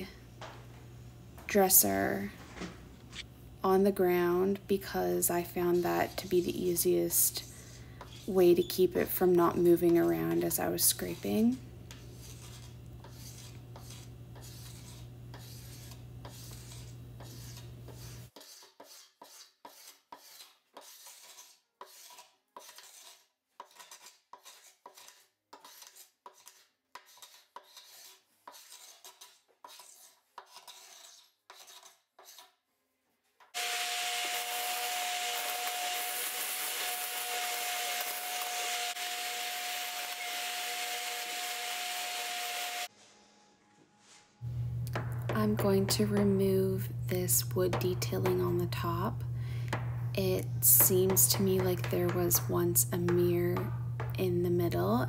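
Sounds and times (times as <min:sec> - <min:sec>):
scraper rasping on wood: 0:07.3 - 0:08.5, 0:11.9 - 0:32.6.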